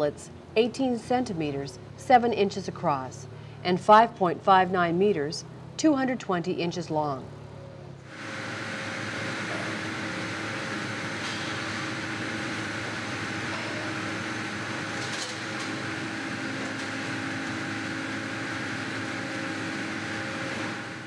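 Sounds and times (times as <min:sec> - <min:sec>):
factory machinery drone: 0:00.0 - 0:21.0.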